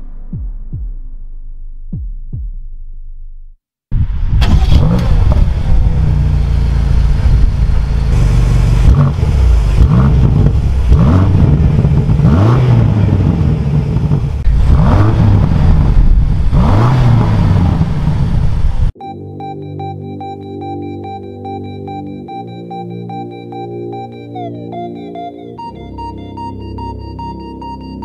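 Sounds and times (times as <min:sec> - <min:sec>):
car engine starting and idling: 0:04.2 - 0:19.0
engine throttle blips: 0:04.4 - 0:28.0.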